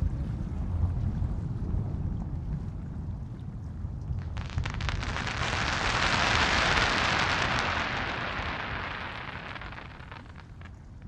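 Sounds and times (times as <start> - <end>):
firework pop: 4.2 - 10.8
fireworks crackling hiss: 4.2 - 10.8.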